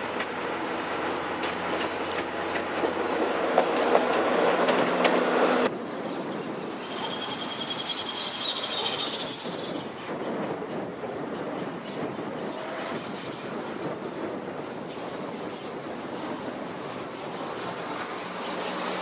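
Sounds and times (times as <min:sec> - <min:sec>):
wheels clicking over rail joints: 0:00.0 - 0:05.7
diesel railcar passing: 0:00.0 - 0:19.0.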